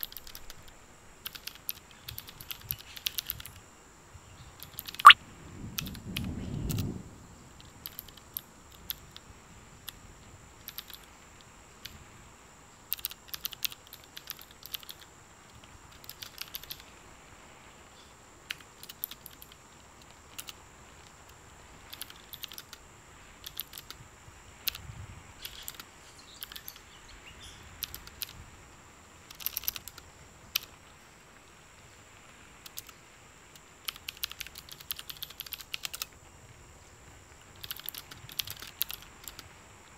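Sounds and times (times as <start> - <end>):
keystrokes on computer keyboard: 0.0 - 3.6, 4.6 - 5.2, 5.8 - 6.8, 7.7 - 9.2, 10.6 - 11.1, 12.9 - 15.1, 15.9 - 16.8, 18.5 - 20.6, 21.9 - 22.8, 23.4 - 24.0, 25.4 - 26.8, 27.8 - 28.4, 29.2 - 30.0, 32.6 - 32.9, 33.8 - 36.1, 37.4 - 39.5.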